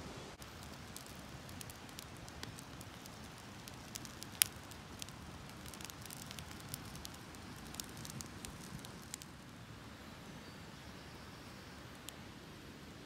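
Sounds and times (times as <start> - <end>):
campfire crackling and popping: 0.4 - 9.6, 11.9 - 12.3.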